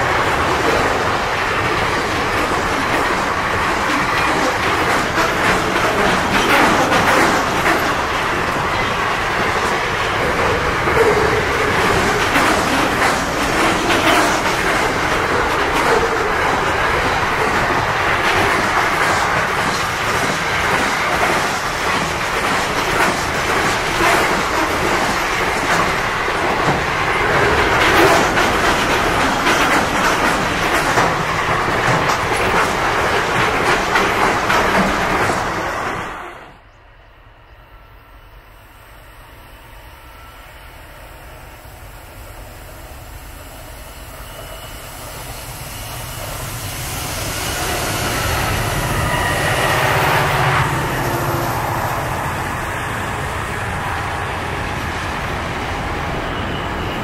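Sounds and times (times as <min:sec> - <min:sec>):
wheels clicking over rail joints: 0:00.0 - 0:36.2
freight train rumbling past: 0:00.0 - 0:57.0.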